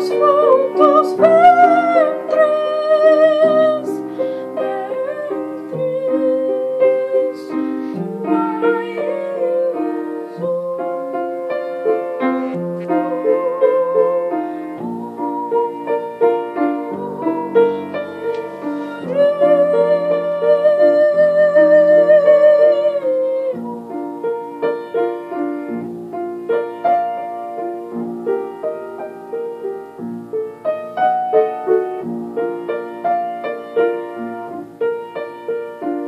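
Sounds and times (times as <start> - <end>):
girl singing with vibrato: 0.0 - 25.4
piano: 0.0 - 36.0.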